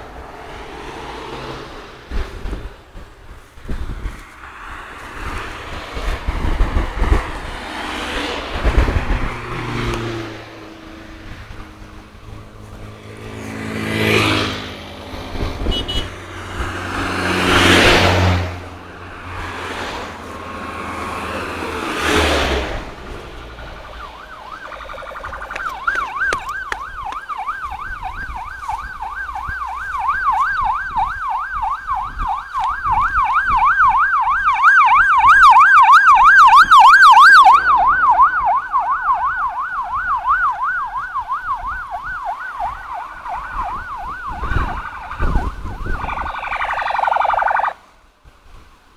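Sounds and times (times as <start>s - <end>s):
vehicles passing close by: 0.0s - 48.9s
warbling yelp siren: 23.4s - 47.8s.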